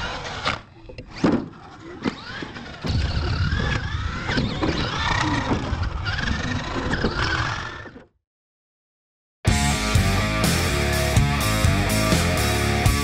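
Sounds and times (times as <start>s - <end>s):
toy truck motor whining: 1.5s - 8.1s.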